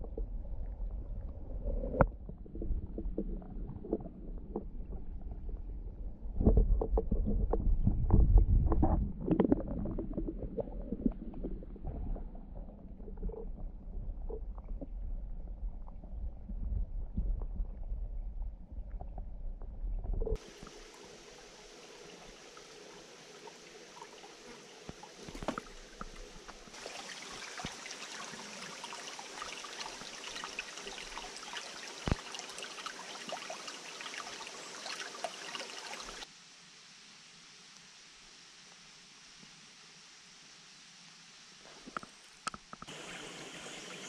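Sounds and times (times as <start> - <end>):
muffled underwater stream rumble: 0.0 - 28.8
stream water trickling over stones: 6.5 - 16.2, 20.0 - 36.3, 41.9 - 44.0
faint outdoor hiss: 20.4 - 44.0.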